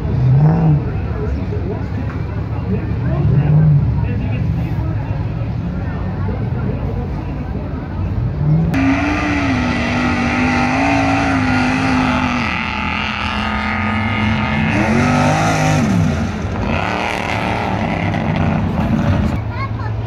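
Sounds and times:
truck engine revving: 8.1s - 20.0s.

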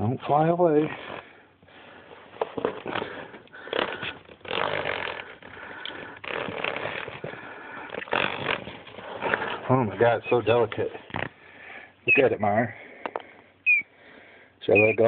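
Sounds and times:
breathing close to microphone: 0.9s - 9.7s, 11.3s - 12.0s, 12.7s - 14.6s
plastic cases rustling and knocking: 2.2s - 9.6s.

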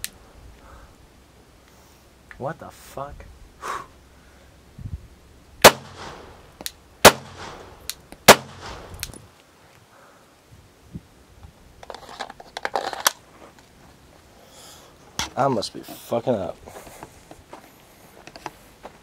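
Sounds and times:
pistol shots with echo: 5.6s - 9.1s.

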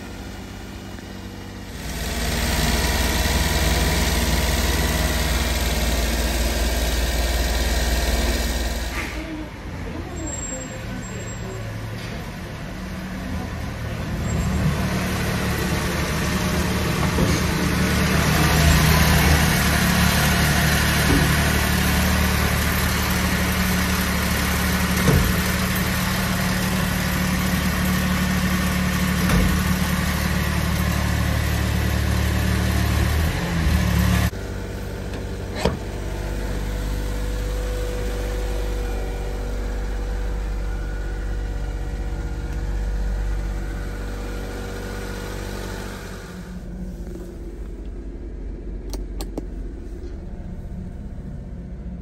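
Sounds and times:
small engine running: 0.0s - 9.3s, 14.8s - 47.4s
engine idling heard inside cab: 33.8s - 52.0s
sharp click: 48.9s - 49.5s.

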